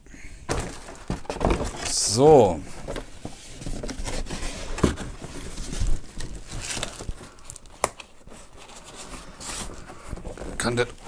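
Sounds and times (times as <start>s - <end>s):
cardboard rubbing and scraping: 0.6s - 7.2s.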